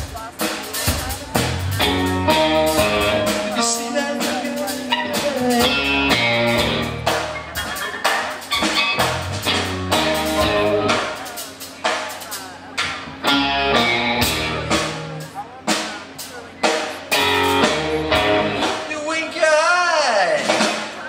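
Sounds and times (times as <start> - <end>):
drum kit: 0.0 - 21.0
electric guitar: 1.4 - 11.6, 12.8 - 15.4, 16.8 - 19.4
electric guitar lead lines: 1.4 - 11.6, 12.8 - 15.9, 16.5 - 20.6.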